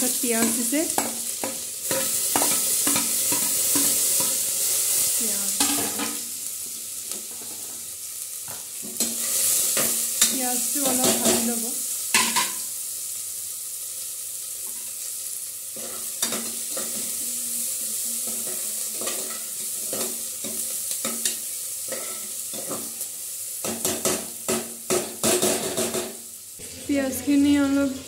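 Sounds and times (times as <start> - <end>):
onions sizzling in pan: 0.0 - 28.0
stirring scraping and knocking pan: 0.3 - 4.6.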